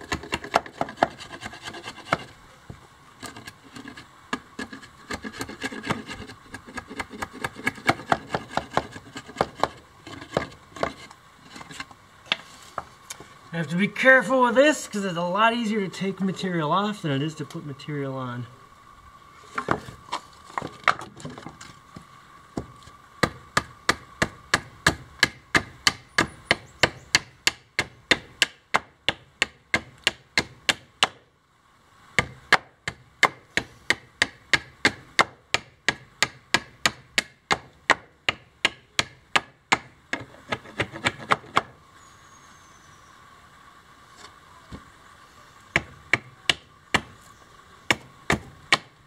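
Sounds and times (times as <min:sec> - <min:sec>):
blade chopping wood: 0:04.6 - 0:11.0, 0:22.6 - 0:31.2, 0:32.2 - 0:41.7, 0:45.7 - 0:47.2, 0:47.9 - 0:48.9.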